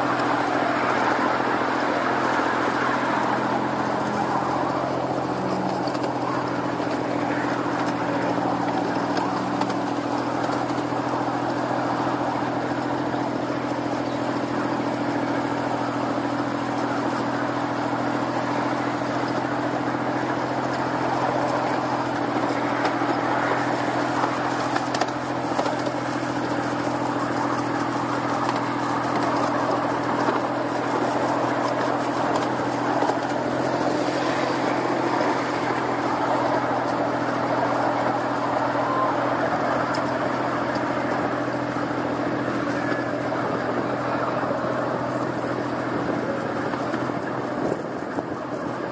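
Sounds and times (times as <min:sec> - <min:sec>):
miniature train running on track: 0:00.0 - 0:48.9.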